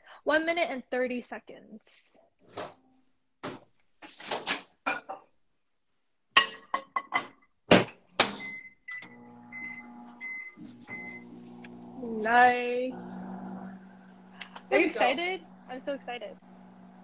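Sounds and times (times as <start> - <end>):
keypad beeps: 8.4 - 11.2
microwave running hum: 9.0 - 17.0.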